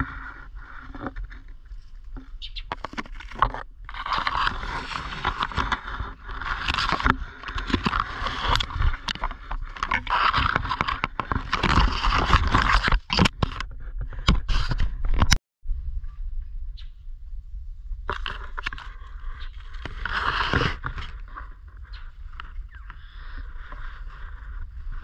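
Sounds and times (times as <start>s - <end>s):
leaves and twigs rustling: 0.0s - 13.5s.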